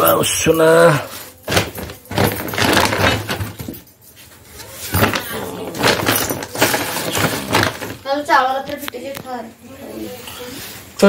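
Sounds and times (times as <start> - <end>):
plastic bag rustling: 1.0 - 9.5.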